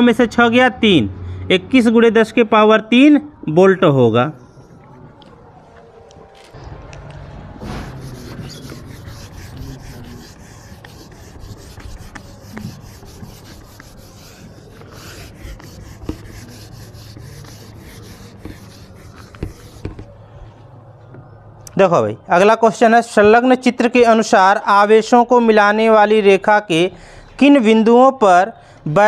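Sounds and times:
eraser knocking against board: 7.6s - 13.9s
eraser scrubbing whiteboard: 7.6s - 20.2s.

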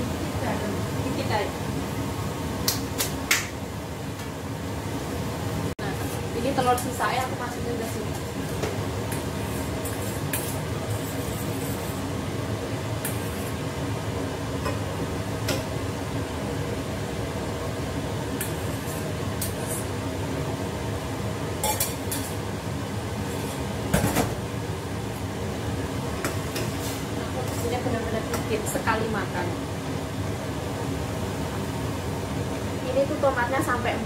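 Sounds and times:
low kitchen rumble: 0.0s - 34.0s
metal bowl and spoon clinking: 21.6s - 22.4s.

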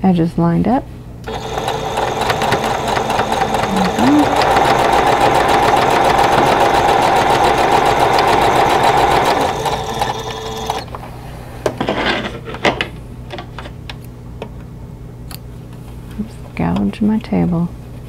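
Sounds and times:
electric sewing machine running: 1.3s - 10.9s.

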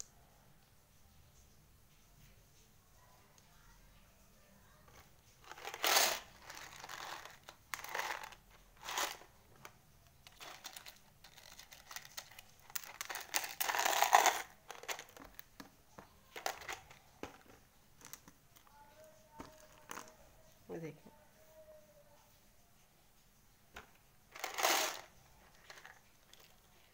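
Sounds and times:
foam letters crinkling: 4.9s - 18.7s, 23.8s - 26.9s.

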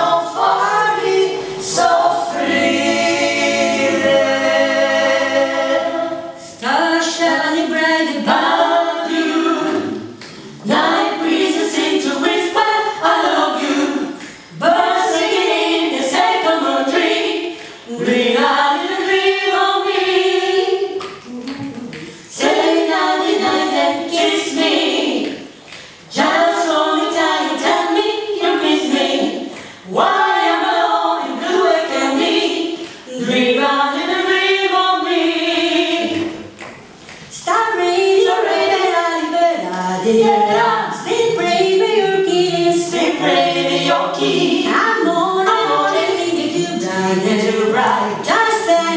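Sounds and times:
vocal group singing a cappella: 0.0s - 48.9s.

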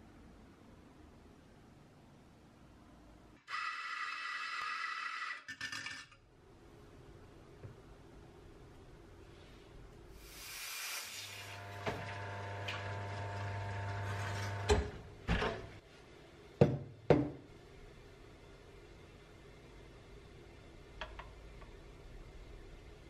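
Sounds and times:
espresso machine hiss: 10.2s - 12.5s
espresso pump humming: 11.6s - 14.7s.

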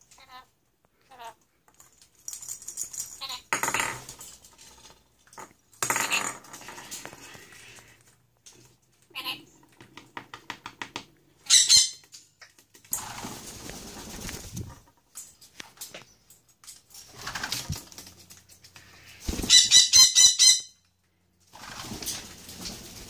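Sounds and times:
parrot screeching: 11.4s - 12.0s, 19.5s - 20.8s.

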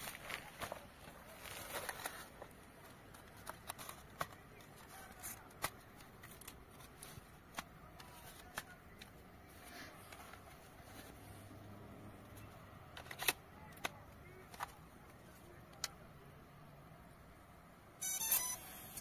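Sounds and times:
soft rustling: 0.0s - 11.5s.

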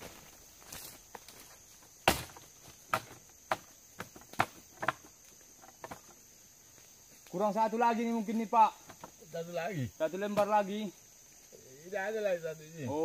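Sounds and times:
high insect drone: 0.0s - 13.0s
bamboo knocks: 2.0s - 5.1s.

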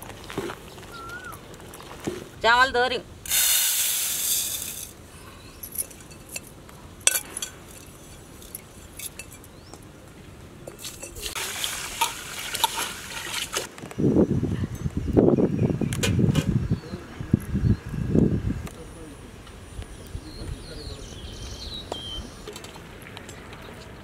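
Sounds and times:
dry rice pouring into a pot: 3.3s - 4.9s
bowl clinking on pot: 5.8s - 9.5s
water pouring in a pot: 10.8s - 13.7s.

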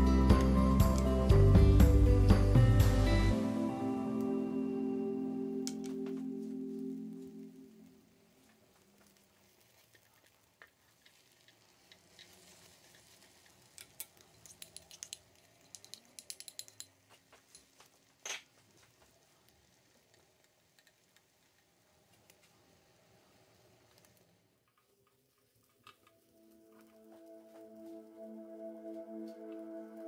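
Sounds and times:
egg sizzling in a pan: 6.7s - 27.9s
utensils clicking against pan: 9.8s - 18.5s.

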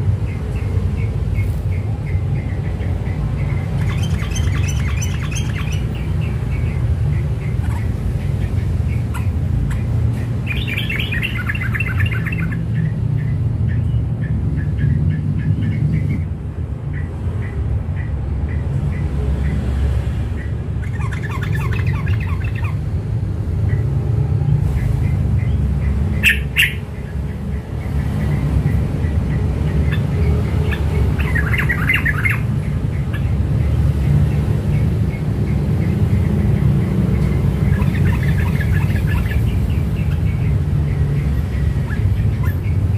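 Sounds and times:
bird chattering song: 0.0s - 42.9s.

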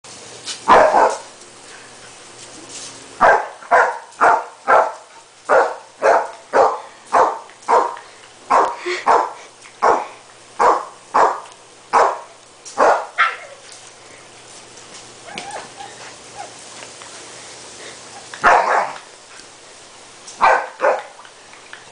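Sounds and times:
dog barking: 0.7s - 1.3s, 3.2s - 13.5s, 18.4s - 19.0s, 20.4s - 21.1s.

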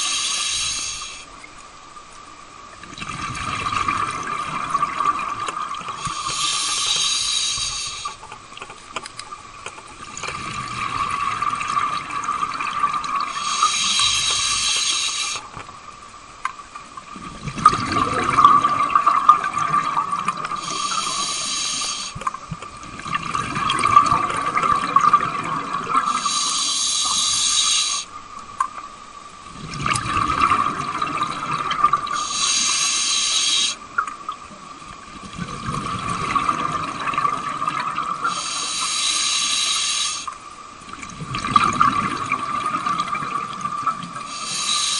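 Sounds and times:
regulator hiss on inhale: 0.0s - 1.4s, 5.9s - 8.4s, 13.2s - 15.6s, 20.4s - 22.3s, 26.0s - 28.2s, 32.1s - 33.9s, 38.2s - 40.4s, 44.2s - 44.9s
exhaled bubbles rushing: 2.8s - 6.3s, 10.0s - 13.7s, 17.0s - 21.4s, 22.2s - 26.3s, 29.4s - 32.2s, 35.1s - 38.4s, 40.8s - 44.3s.

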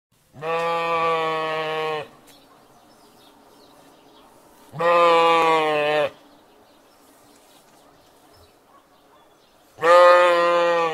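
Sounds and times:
sheep bleating: 0.4s - 2.2s, 4.7s - 6.2s, 9.8s - 10.9s.

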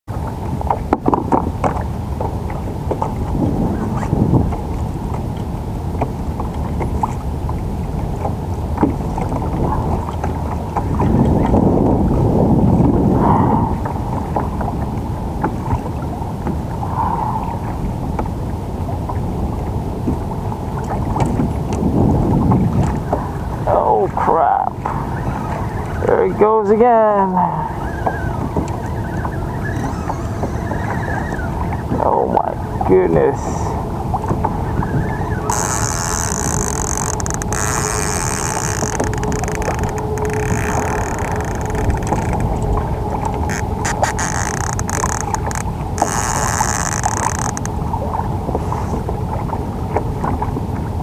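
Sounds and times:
water lapping against hull: 0.1s - 51.0s
wind buffeting microphone: 0.1s - 51.0s
small clicks and splashes: 20.8s - 21.8s, 35.4s - 50.6s.

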